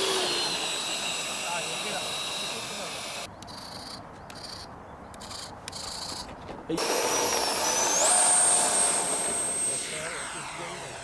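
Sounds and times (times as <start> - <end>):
model jet fan whine: 0.0 - 3.3, 6.8 - 11.0.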